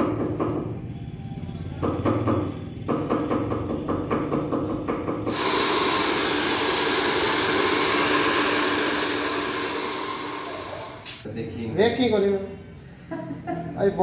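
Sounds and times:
hair dryer blowing: 0:05.3 - 0:11.2.

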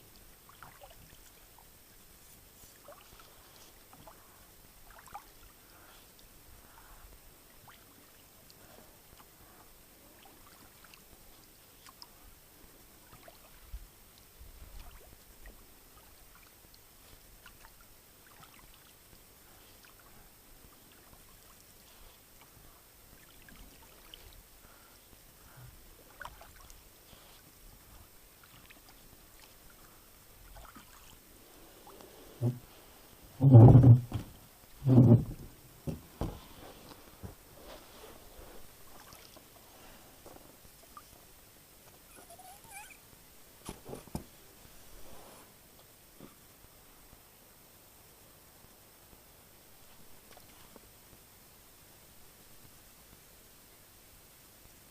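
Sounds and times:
paddle dripping and splashing: 0:00.1 - 0:02.1, 0:02.7 - 0:06.8, 0:13.0 - 0:25.3, 0:26.0 - 0:33.2, 0:35.9 - 0:39.9
low thump: 0:33.4 - 0:36.4.

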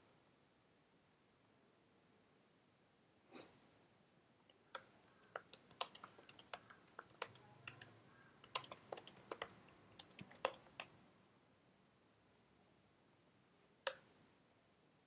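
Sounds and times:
typing on keyboard: 0:04.7 - 0:11.0.

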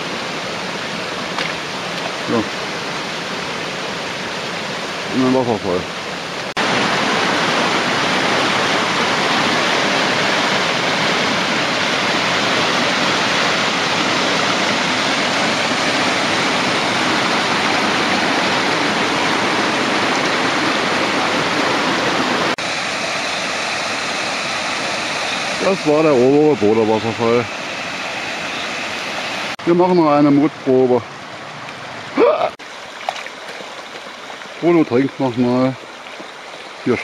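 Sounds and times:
waterfall rushing over boulders: 0:00.0 - 0:37.0.

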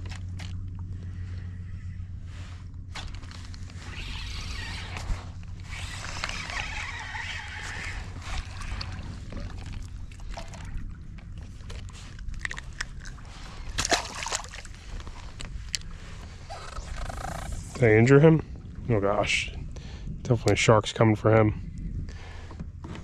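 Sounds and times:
water sloshing against kayak: 0:00.0 - 0:17.3
low rumble: 0:00.0 - 0:23.0.

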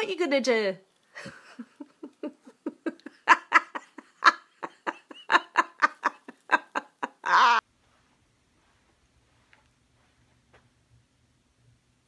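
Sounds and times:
woman laughing: 0:01.2 - 0:07.6.

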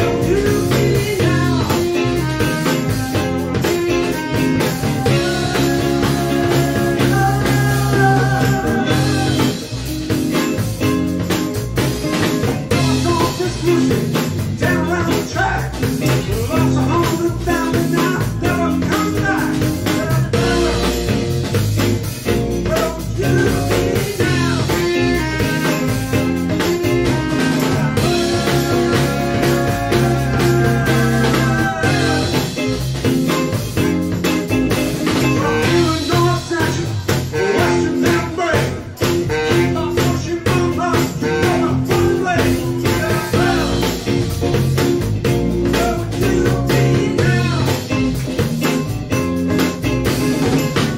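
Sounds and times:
saxophone: 0:00.0 - 0:10.3, 0:22.8 - 0:32.9, 0:35.1 - 0:44.2
drum kit beat: 0:00.0 - 0:50.9
electric guitar lead: 0:00.0 - 0:50.9
live rock band playing: 0:00.0 - 0:50.9
tambourine: 0:00.0 - 0:50.9.

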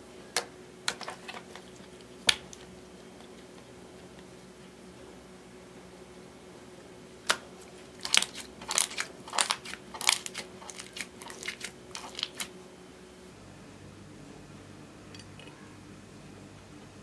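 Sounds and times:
wet crackles and snaps: 0:00.4 - 0:03.6, 0:07.2 - 0:12.5
slime squishing: 0:07.3 - 0:12.5.

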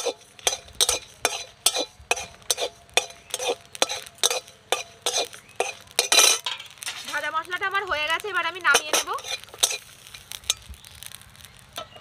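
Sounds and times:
metal spatula scraping a pan: 0:00.0 - 0:07.2, 0:08.7 - 0:10.7.

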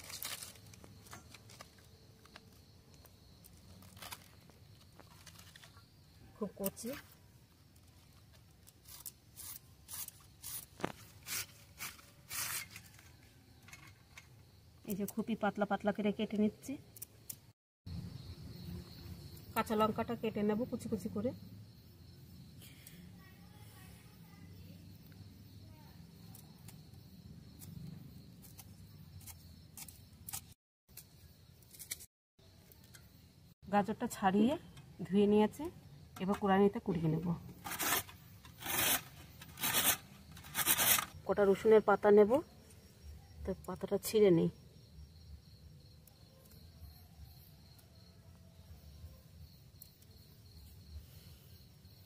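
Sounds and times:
knife slicing cabbage: 0:37.7 - 0:41.1.

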